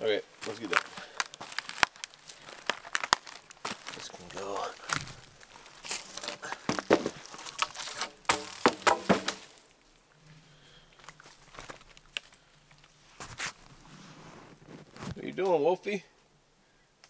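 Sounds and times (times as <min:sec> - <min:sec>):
dry wood cracking and snapping: 0:00.4 - 0:10.0, 0:10.8 - 0:13.7.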